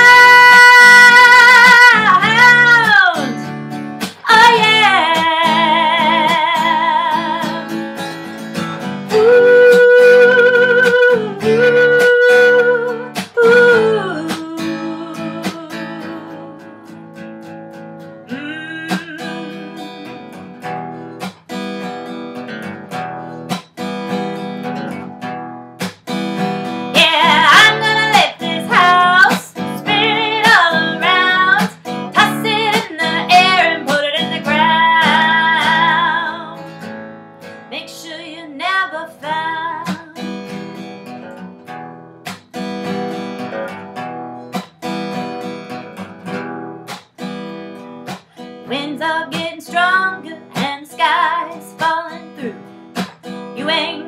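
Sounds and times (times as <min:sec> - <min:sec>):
woman singing: 0:00.0 - 0:08.0, 0:08.8 - 0:17.0, 0:18.2 - 0:20.7, 0:26.7 - 0:36.8, 0:37.7 - 0:40.7, 0:48.6 - 0:54.0
acoustic guitar strummed hard: 0:00.0 - 0:37.7, 0:39.3 - 0:54.0.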